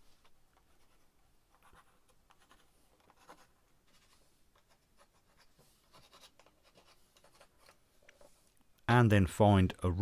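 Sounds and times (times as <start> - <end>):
pencil scratching on wood: 0.6 - 8.3.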